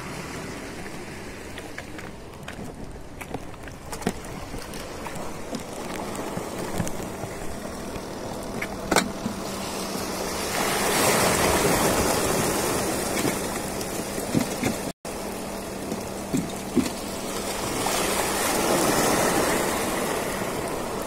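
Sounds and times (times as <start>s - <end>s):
seawater rushing over concrete: 0.0s - 21.0s.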